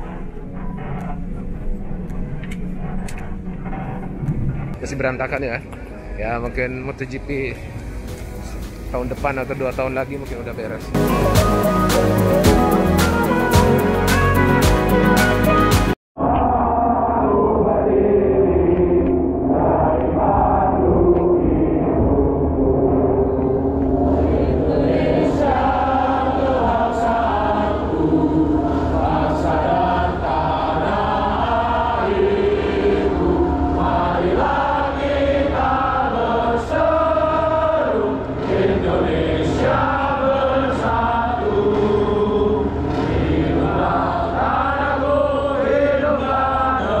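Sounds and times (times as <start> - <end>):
choir singing slow song: 11.0 - 47.0.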